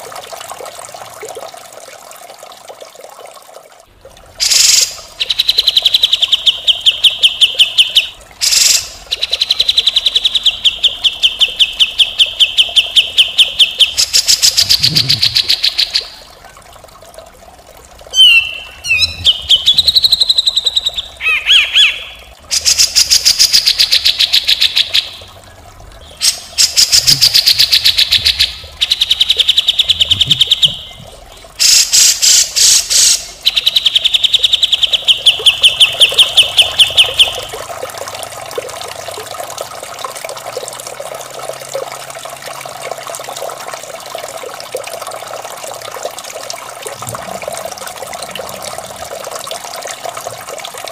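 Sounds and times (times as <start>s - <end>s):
running water trickling: 0.0s - 50.9s
bird singing rattling trills: 18.2s - 22.2s, 33.4s - 37.5s.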